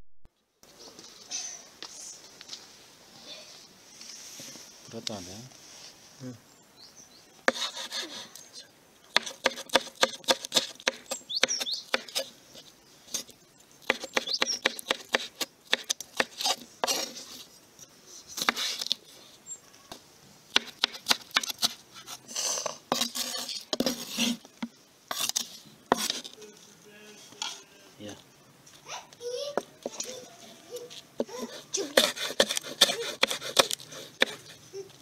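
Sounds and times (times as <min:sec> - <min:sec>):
knife scraping strokes: 0:07.5 - 0:08.4, 0:14.9 - 0:17.5, 0:18.2 - 0:19.0, 0:20.6 - 0:24.5, 0:25.1 - 0:26.4, 0:31.4 - 0:34.6.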